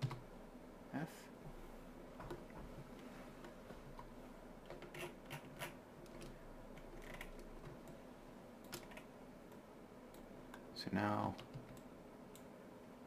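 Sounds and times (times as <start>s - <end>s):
low steady hum: 0.0s - 13.0s
computer keyboard clicks: 8.6s - 9.1s.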